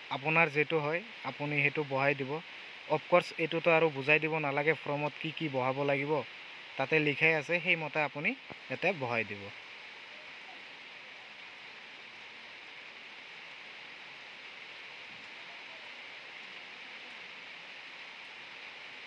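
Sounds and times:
steady low hiss: 0.0s - 19.0s.

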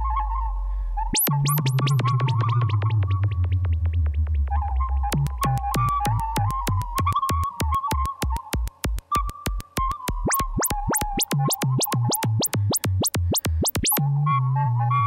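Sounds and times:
electronic music with sharp pulses: 1.1s - 2.8s, 5.1s - 14.0s
low held bass notes: 2.0s - 15.0s
rising synth sweeps: 8.6s - 14.0s.

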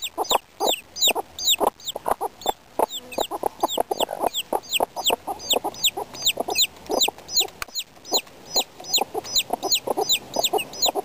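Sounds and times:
baby chicks peeping: 0.0s - 11.0s
hens clucking: 0.0s - 11.0s.

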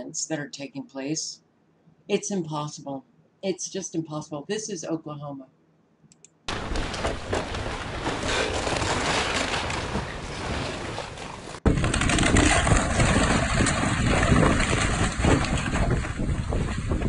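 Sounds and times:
wind buffeting microphone: 6.5s - 17.0s.

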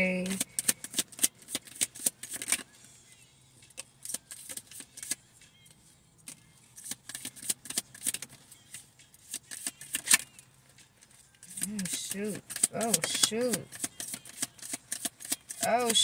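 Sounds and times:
cards being shuffled: 0.2s - 2.6s, 4.0s - 5.2s, 6.3s - 10.4s, 11.4s - 16.0s.

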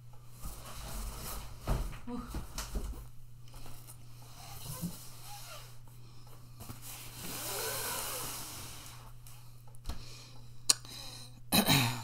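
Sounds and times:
steady low hum: 0.0s - 12.0s
box scraping across table: 6.9s - 9.0s.

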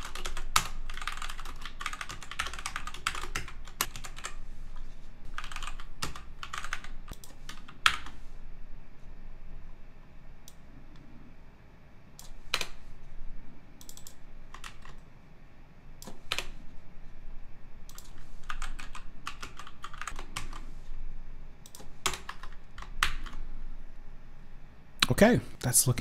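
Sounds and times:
typing on computer keyboard: 0.0s - 8.2s, 12.2s - 12.8s, 13.8s - 15.1s, 16.0s - 16.6s, 17.9s - 20.7s, 21.6s - 23.4s.

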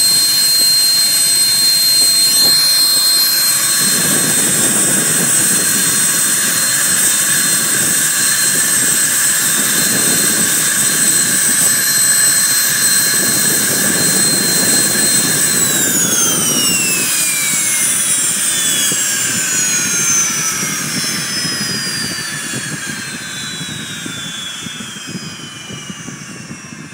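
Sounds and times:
jet engine whining: 0.0s - 26.9s.

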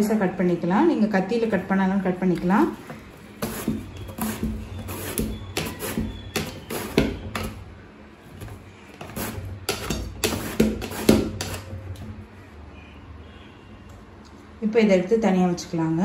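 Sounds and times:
banana scraping over slicer blade: 2.6s - 7.6s, 8.4s - 11.7s.

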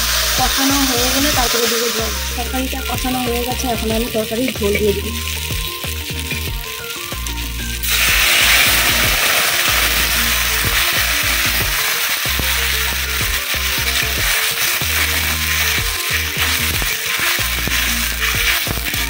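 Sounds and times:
sizzling steam hiss: 0.0s - 19.0s
water poured into hot pan: 0.0s - 19.0s
metal spatula scraping pan: 7.8s - 19.0s.

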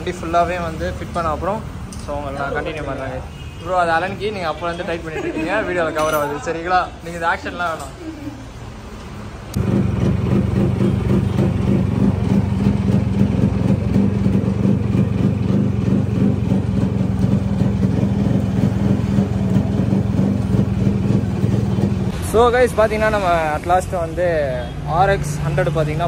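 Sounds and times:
motorcycle engine idling: 9.6s - 22.1s.

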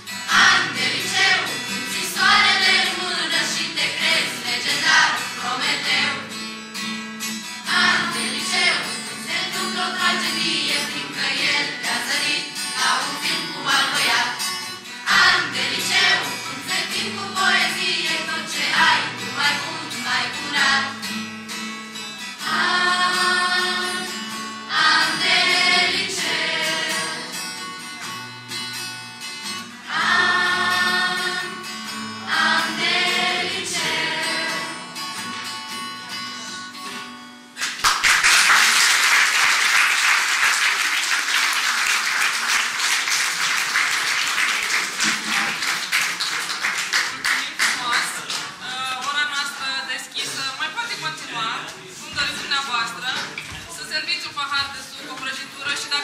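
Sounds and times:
acoustic guitar: 0.0s - 56.0s
group singing: 0.2s - 6.4s, 7.6s - 21.1s, 22.4s - 27.6s, 29.8s - 35.0s.

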